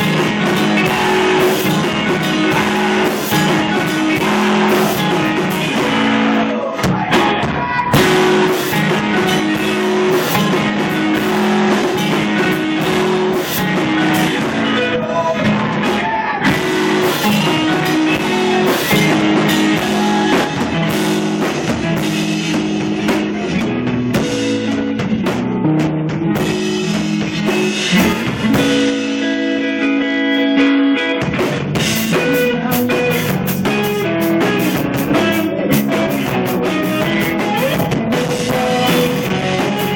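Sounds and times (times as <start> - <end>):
drum kit: 0.0 - 39.9
electric guitar: 0.0 - 39.9.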